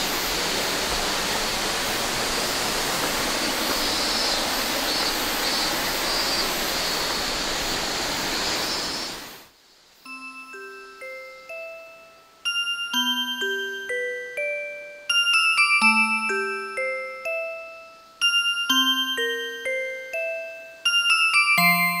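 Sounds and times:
rushing waterfall: 0.0 - 11.9.

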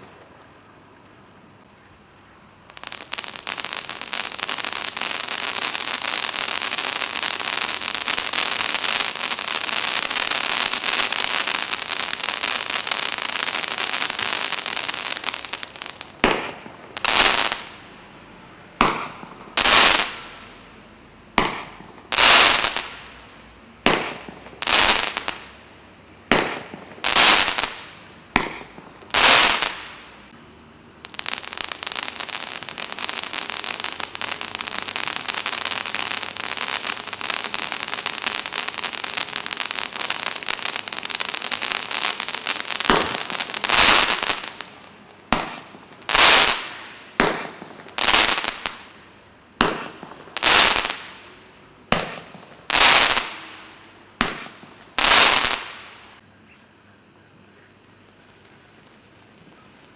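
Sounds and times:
crackling spray of sparks: 2.7 - 17.8, 23.9 - 25.6, 26.3 - 30.4, 31.0 - 49.0, 49.6 - 51.3, 51.9 - 56.2
firework mines firing: 2.7 - 17.9, 18.8 - 20.7, 21.3 - 23.2, 23.8 - 25.6, 26.3 - 30.3, 31.0 - 56.2.

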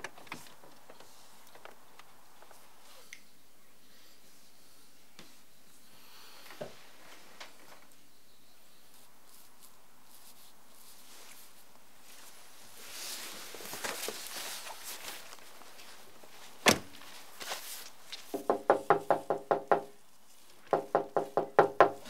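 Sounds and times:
car door shutting: 16.6 - 16.9
knocking on glass-paned door: 18.3 - 19.9, 20.7 - 22.0.

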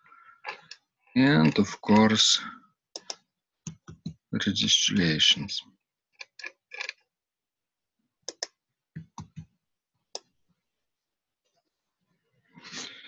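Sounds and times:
mouse and keyboard clicks: 3.0 - 4.2, 8.3 - 9.5.

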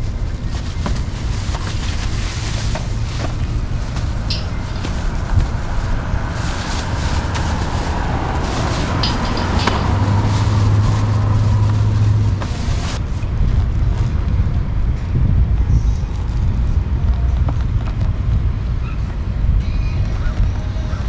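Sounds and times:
grocery bags rustling: 0.0 - 14.6
wind buffeting microphone: 0.0 - 21.0.

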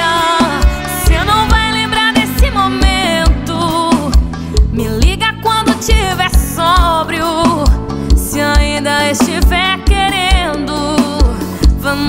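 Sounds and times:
woman singing: 0.0 - 12.0
steady kick drum beat: 0.7 - 7.0.

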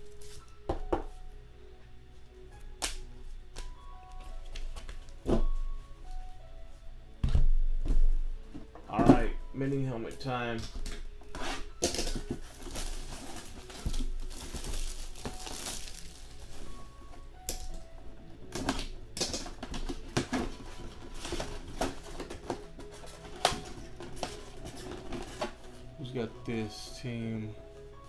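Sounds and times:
faint background music: 0.0 - 28.0
cardboard and paper rustling: 11.3 - 17.0, 19.4 - 25.9.

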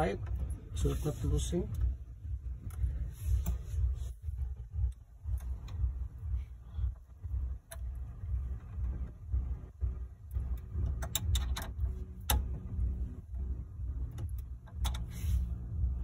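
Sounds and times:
low uneven rumble: 0.0 - 16.0
metallic clicks and taps: 7.6 - 8.0, 10.3 - 12.8, 14.0 - 15.1.

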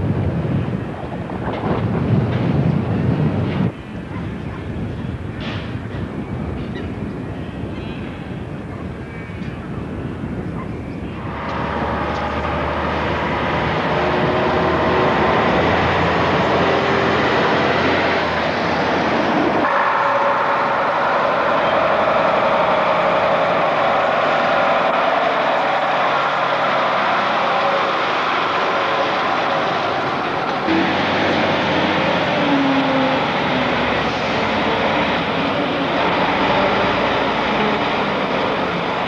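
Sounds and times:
steady engine noise: 11.0 - 39.0
diesel lorry engine passing: 11.2 - 39.0.

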